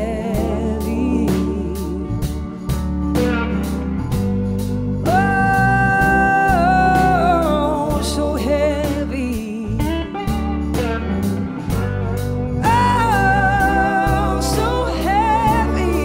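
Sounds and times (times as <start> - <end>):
bass guitar: 0.0 - 16.0
drums: 0.0 - 16.0
slide guitar: 0.0 - 16.0
backing vocalists singing: 12.6 - 16.0.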